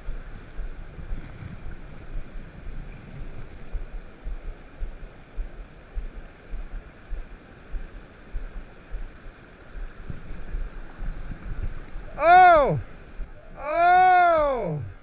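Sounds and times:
wind gusting on microphone: 0.0s - 15.0s
river water rushing: 3.6s - 15.0s
loud rising and falling cry: 12.1s - 12.8s, 13.5s - 15.0s.

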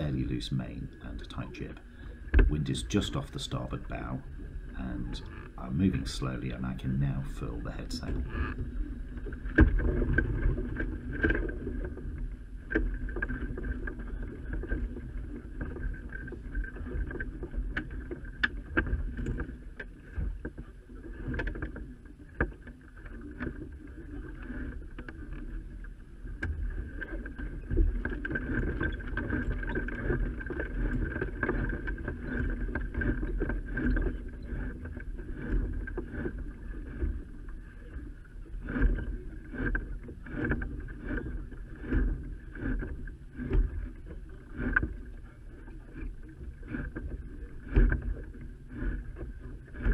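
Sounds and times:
wind buffeting microphone: 0.0s - 20.5s
boat gear knocks and clicks: 0.0s - 49.9s.

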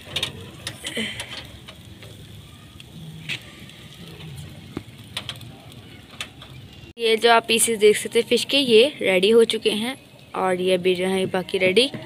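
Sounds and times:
faint clicks and crackles: 0.0s - 7.0s.

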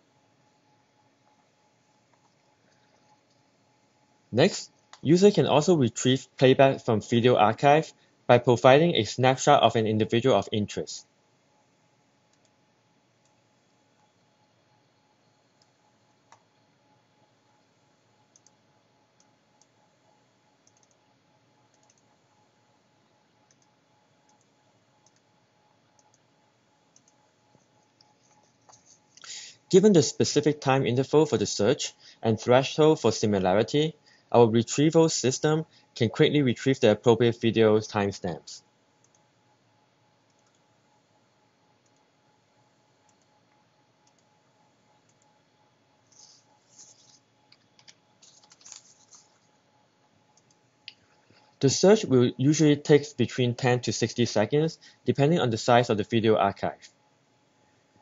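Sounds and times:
computer mouse clicks: 12.3s - 12.6s, 13.2s - 13.4s, 15.6s - 16.6s, 18.3s - 18.6s, 19.2s - 19.8s, 20.6s - 21.1s, 21.7s - 22.1s, 23.4s - 25.3s, 25.9s - 26.3s, 26.9s - 29.3s, 39.0s - 39.3s, 40.3s - 40.7s, 41.8s - 42.1s, 43.0s - 44.4s, 45.0s - 45.4s, 46.1s - 49.5s, 50.3s - 51.6s
faint clicks: 21.7s - 22.1s.

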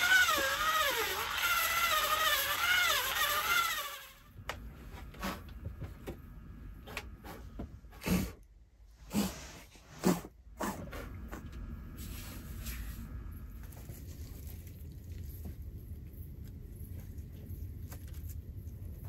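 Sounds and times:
cordless drill running: 0.0s - 4.3s.

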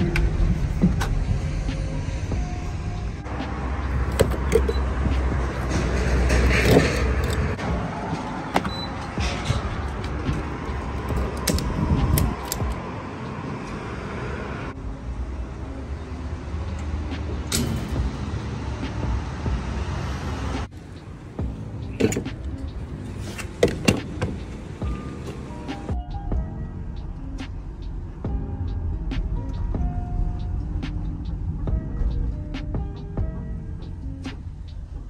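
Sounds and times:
van engine rumbling: 0.0s - 35.0s
fuel nozzle clicks and knocks: 11.0s - 12.8s.

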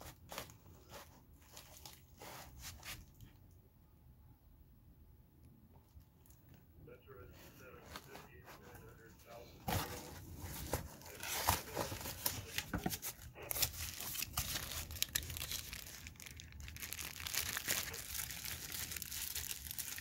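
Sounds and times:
plastic and cardboard packaging crinkling: 0.0s - 3.4s, 7.8s - 20.0s.

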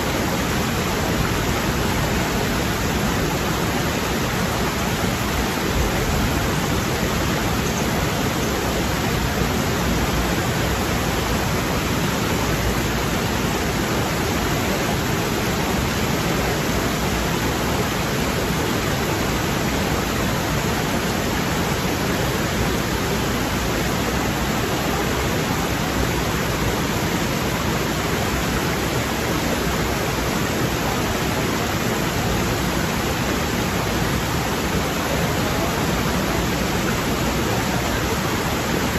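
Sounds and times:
stream rushing over boulders: 0.0s - 38.9s.

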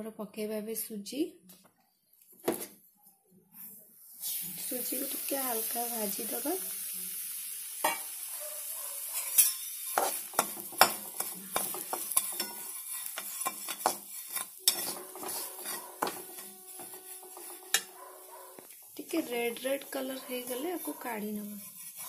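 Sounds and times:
faint sizzle: 3.5s - 22.0s
metal spatula scraping a pan: 7.8s - 8.4s, 9.0s - 22.0s.

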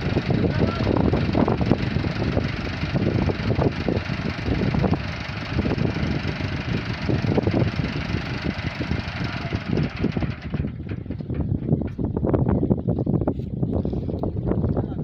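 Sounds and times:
tractor diesel engine idling: 0.0s - 11.8s.

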